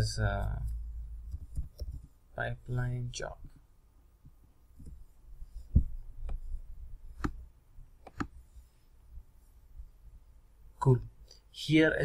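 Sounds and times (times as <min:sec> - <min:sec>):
computer mouse clicking: 0:01.3 - 0:02.1, 0:07.2 - 0:07.4, 0:08.0 - 0:08.4.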